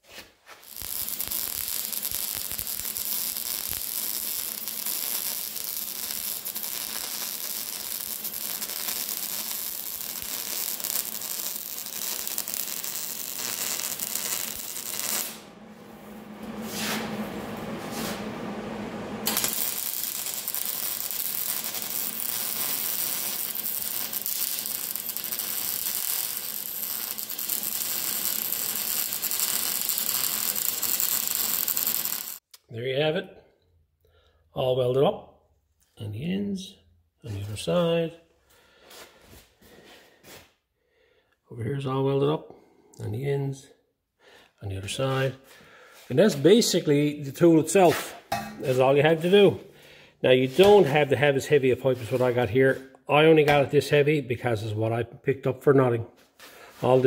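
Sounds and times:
welder arc crackling: 0.1 - 32.5, 50.3 - 52.8.

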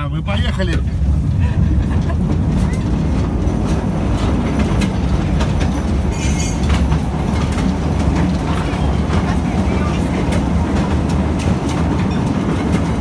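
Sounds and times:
mine train rumbling: 0.0 - 13.0
wheels clacking over rails: 0.7 - 13.0
high-pitched wheel squeal: 6.1 - 6.7.

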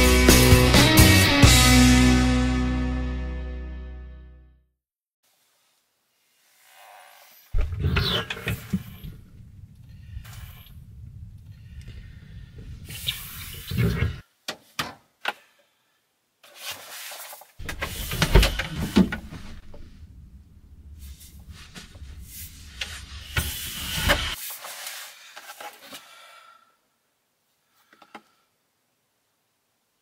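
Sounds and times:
rustling: 16.4 - 26.2.

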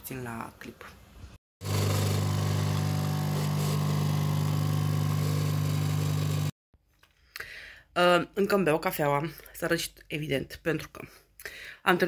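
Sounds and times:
coffee machine humming: 1.6 - 6.6.

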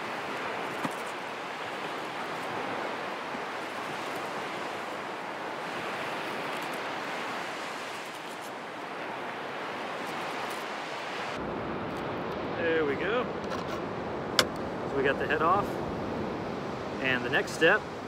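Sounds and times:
ocean surf breaking on beach: 0.0 - 18.0
sharp click: 14.4 - 14.6.

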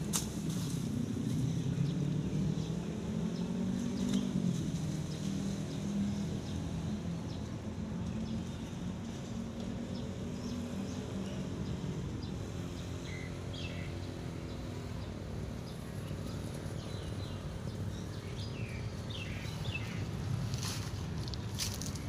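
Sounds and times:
birds chirping: 1.2 - 22.0.

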